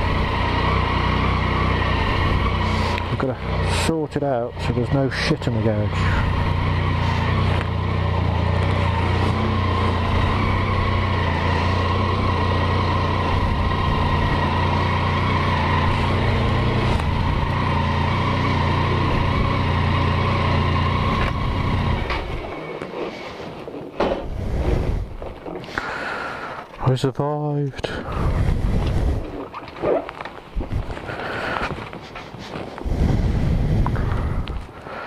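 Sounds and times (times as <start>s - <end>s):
motorcycle engine idling: 0.0s - 22.8s.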